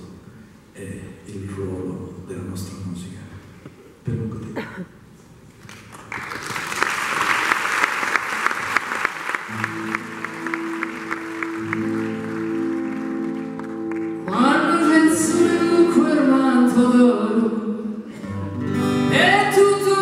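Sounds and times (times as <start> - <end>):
rhythmic clapping: 5.6 - 14.9
acoustic guitar: 9.4 - 20.0
woman singing: 14.2 - 17.8, 19.1 - 20.0.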